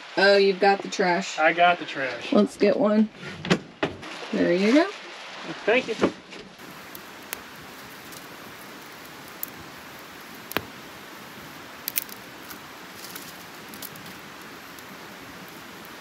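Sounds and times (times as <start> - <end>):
dry leaves rustling: 6.6 - 16.0
steady hiss: 6.6 - 16.0
sharp clicks and ticks: 11.8 - 14.2.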